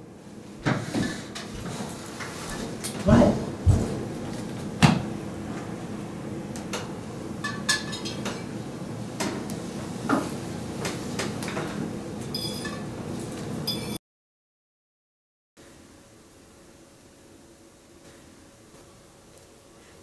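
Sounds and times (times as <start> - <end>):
fork and plates clinking: 12.4 - 12.8.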